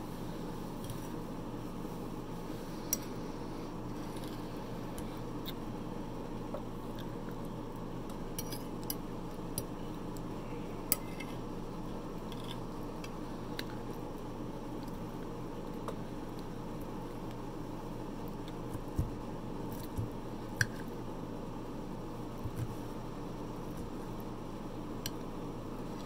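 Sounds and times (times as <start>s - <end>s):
low background hum: 0.0s - 26.0s
fork scraping against a plate: 8.4s - 8.7s, 10.9s - 11.4s.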